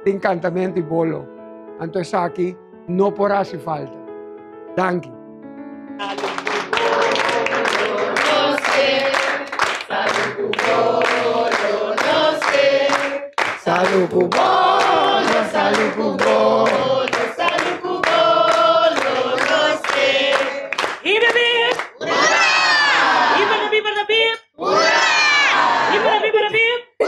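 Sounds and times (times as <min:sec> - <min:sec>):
group singing: 0:06.0 - 0:21.0, 0:22.0 - 0:23.8, 0:24.6 - 0:26.2
hands clapping: 0:06.0 - 0:22.4.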